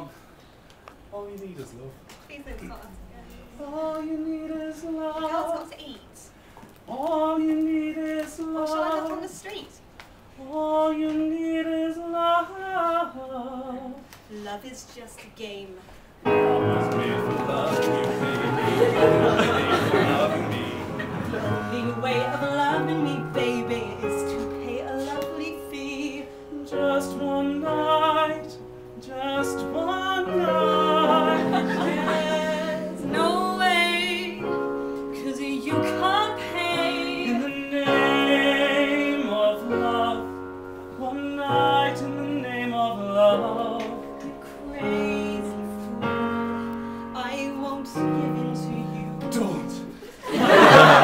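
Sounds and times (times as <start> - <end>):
woman singing with vibrato: 3.3 - 6.4, 7.0 - 9.7, 18.9 - 34.5, 35.2 - 40.3, 41.0 - 46.3
instrumental backing with piano: 15.9 - 51.0.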